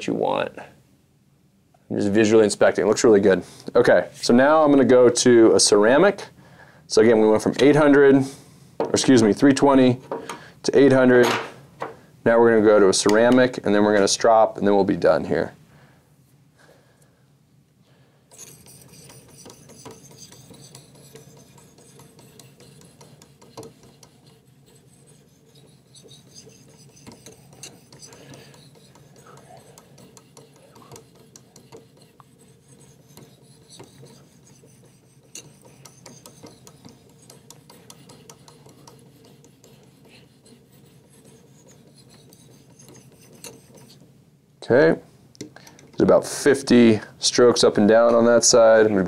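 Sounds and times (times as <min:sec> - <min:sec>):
ceramic hone scraping steel blade: 0:18.3 - 0:44.0.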